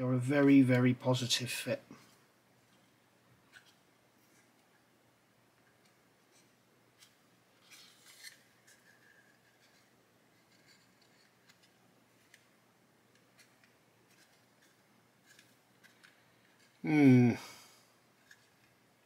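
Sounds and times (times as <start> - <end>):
plastic parts clicking and scraping: 3.5 - 4.8, 5.6 - 12.5, 13.1 - 16.8, 18.2 - 18.8.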